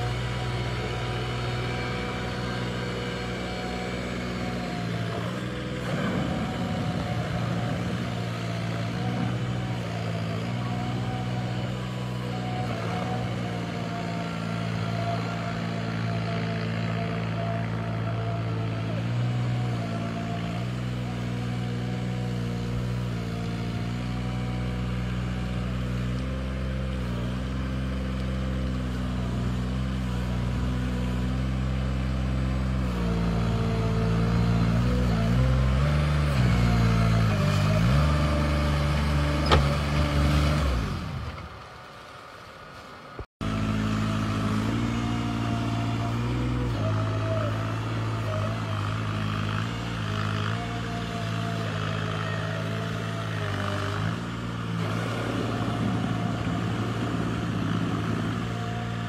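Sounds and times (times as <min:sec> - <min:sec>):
boat engine running: 0:00.0 - 0:19.8, 0:54.3 - 0:59.0.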